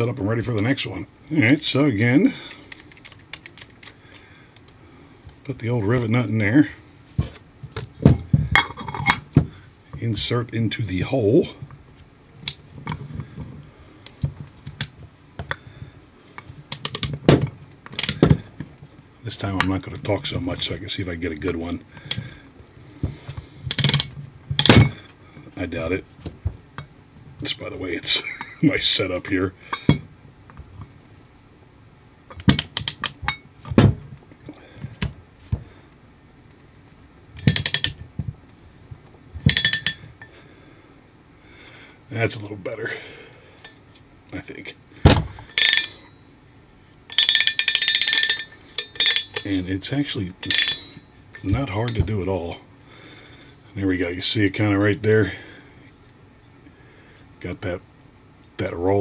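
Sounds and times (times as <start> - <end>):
ratchet tool clicking: 37.4 - 38.0.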